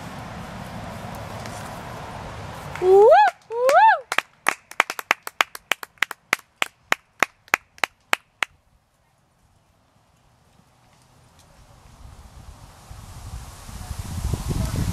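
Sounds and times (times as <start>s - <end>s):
person clapping hands: 2.7s - 8.6s.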